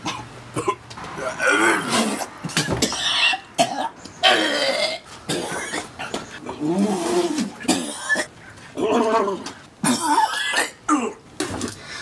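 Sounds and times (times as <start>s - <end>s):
man coughing and gagging: 7.6s - 8.3s, 9.8s - 11.6s.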